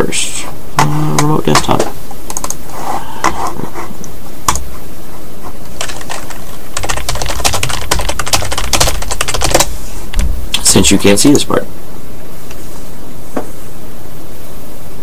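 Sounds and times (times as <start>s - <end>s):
typing on computer keyboard: 1.2s - 2.6s, 5.8s - 9.7s.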